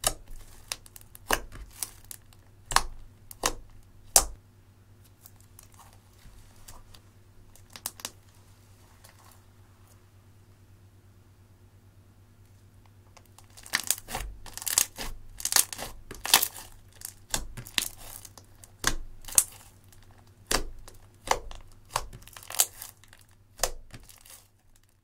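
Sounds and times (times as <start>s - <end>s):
slime crackling and snapping: 0.0s - 4.4s, 7.5s - 8.2s, 13.2s - 25.0s.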